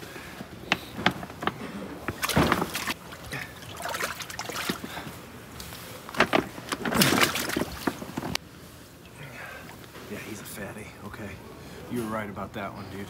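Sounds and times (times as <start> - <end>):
water splashing and dripping: 2.1 - 5.0, 6.7 - 8.2.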